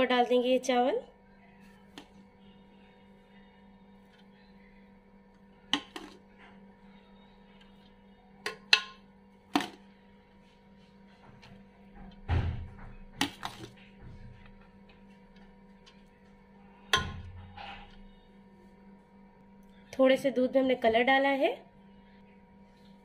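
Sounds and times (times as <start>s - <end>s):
metal spoon knocking on pot: 8.4s - 9.0s.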